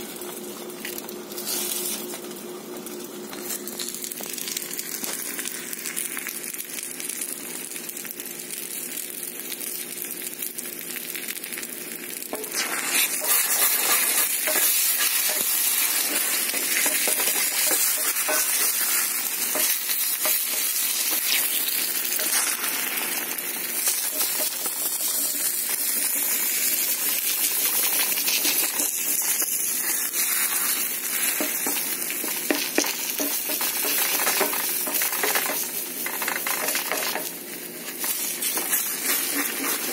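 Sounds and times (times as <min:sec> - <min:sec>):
eggs sizzling in a skillet: 0:00.1 - 0:39.9
wooden spatula scraping and tapping: 0:13.2 - 0:21.5.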